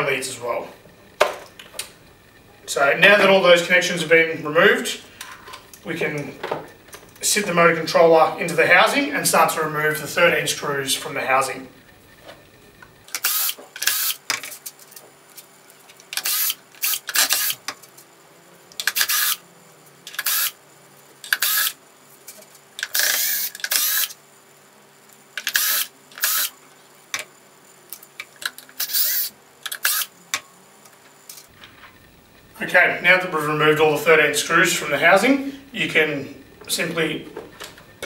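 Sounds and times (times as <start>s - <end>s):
power drill whirring: 0.5s - 14.2s, 16.1s - 17.7s, 18.8s - 19.4s, 20.1s - 20.6s, 21.3s - 21.8s, 22.8s - 24.2s, 25.4s - 26.6s, 28.8s - 30.1s, 31.5s - 38.0s.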